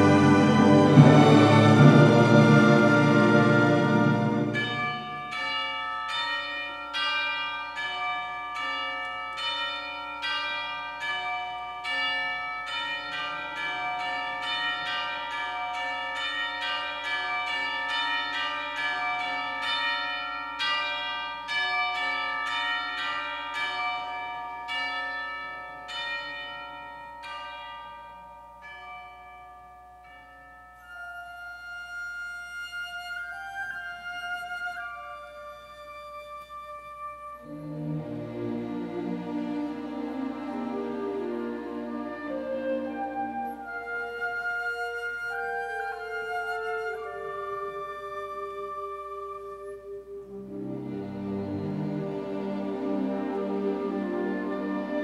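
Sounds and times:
orchestra chord: 0.0 - 5.3, 37.4 - 43.6, 50.3 - 55.0
flute held notes: 30.8 - 38.2, 41.0 - 51.7.

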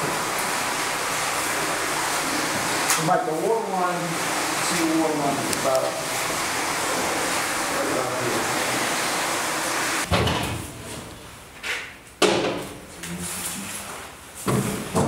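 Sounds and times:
metal cabinet door clunks: 10.1 - 10.6.

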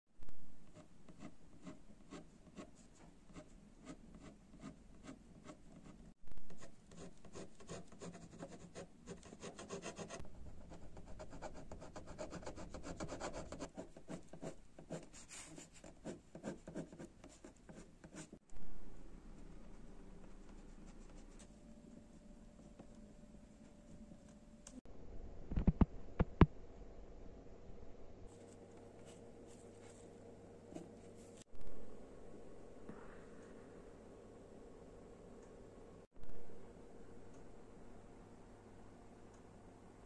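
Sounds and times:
pen scratching on paper: 0.7 - 18.4.

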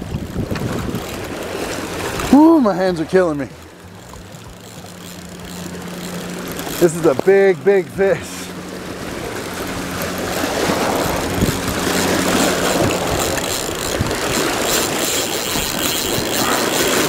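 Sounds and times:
river water splashing on rocks: 0.0 - 7.5.

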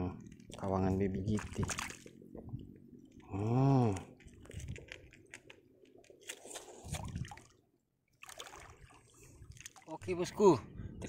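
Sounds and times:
man's wordless voiced sound: 0.0 - 1.8, 9.9 - 11.0
light clicks and rustles: 3.1 - 6.7.

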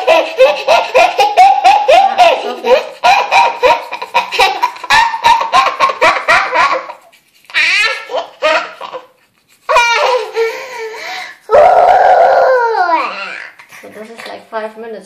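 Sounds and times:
girl laughing: 0.0 - 13.7
girl squealing: 11.4 - 13.6.

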